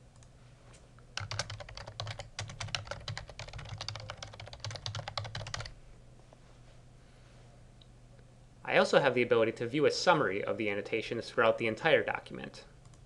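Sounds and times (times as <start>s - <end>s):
typing on computer keyboard: 1.2s - 5.7s.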